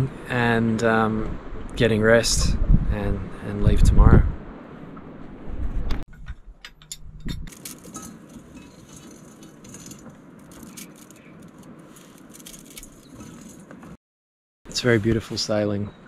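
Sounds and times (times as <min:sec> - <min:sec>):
clinks of gear being handled: 0:07.5 - 0:13.7.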